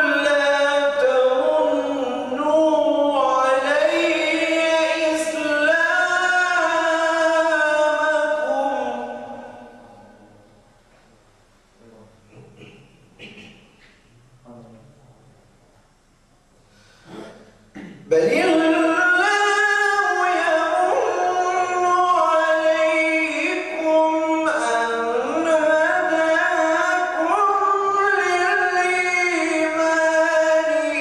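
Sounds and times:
man chanting melodically: 0:00.0 - 0:10.6, 0:14.4 - 0:15.3, 0:17.1 - 0:31.0.

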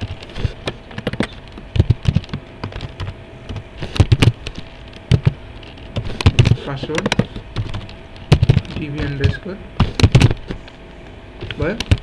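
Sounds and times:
typing on computer keyboard: 0:00.9 - 0:04.4, 0:05.1 - 0:05.4, 0:06.0 - 0:09.4.

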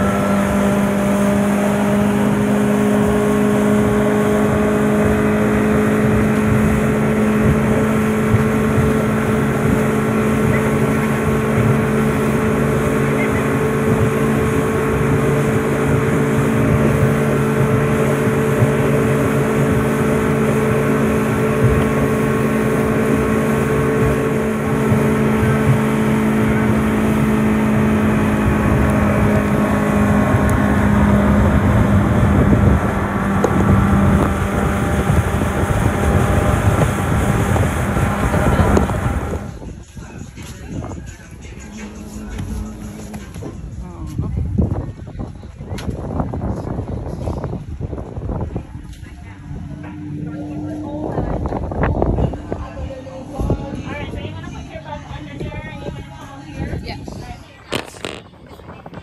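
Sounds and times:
water rushing past hull: 0:00.0 - 0:39.9
motorboat engine running: 0:00.0 - 0:59.0.

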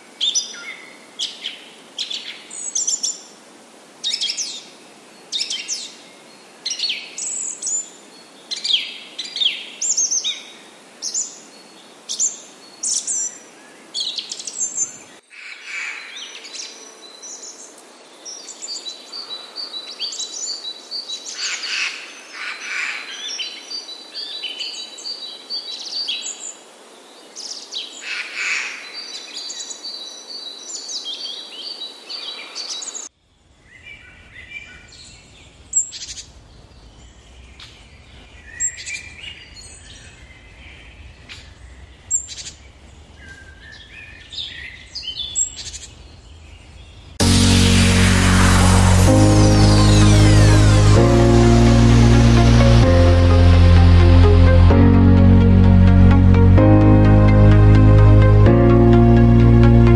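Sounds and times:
low rumble: 0:47.2 - 0:59.9.

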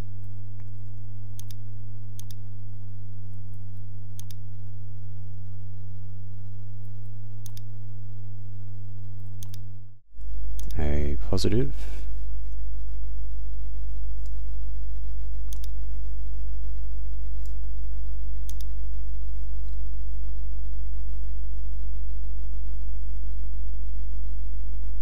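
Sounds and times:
low electrical hum: 0:00.0 - 0:25.0
computer mouse clicks: 0:01.4 - 0:01.6, 0:02.2 - 0:02.4, 0:04.2 - 0:04.4, 0:07.4 - 0:07.7, 0:09.4 - 0:09.6, 0:10.6 - 0:10.8, 0:15.5 - 0:15.8, 0:18.4 - 0:18.7.

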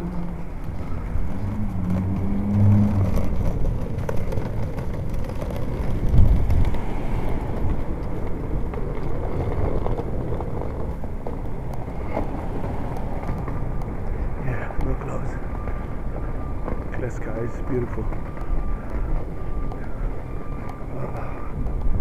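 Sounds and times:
passing car traffic: 0:00.0 - 0:22.0.

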